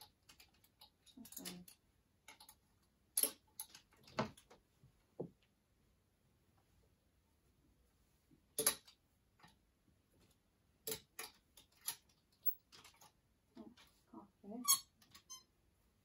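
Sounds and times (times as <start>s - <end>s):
clothes hangers clacking on metal rail: 0.0s - 4.6s, 8.6s - 9.6s, 10.8s - 13.9s.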